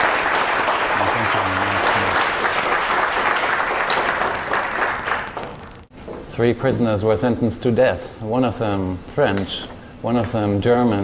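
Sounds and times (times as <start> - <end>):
audience clapping: 0.0 - 5.9.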